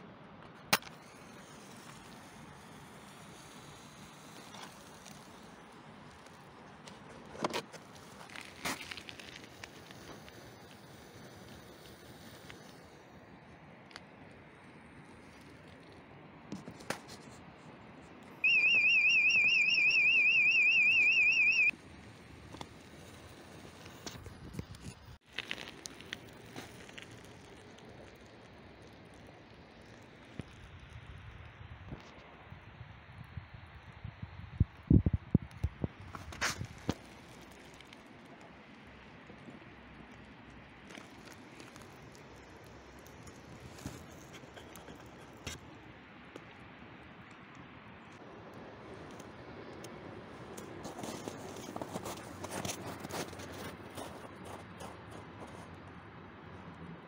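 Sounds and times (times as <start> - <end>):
faint outdoor background noise: 0.0 - 57.0
electronic alarm warbling: 18.4 - 21.7.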